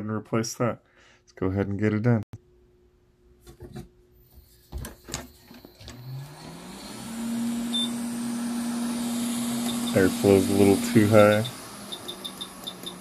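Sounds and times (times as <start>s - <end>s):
hot air blower whirring: 5.8s - 13.0s.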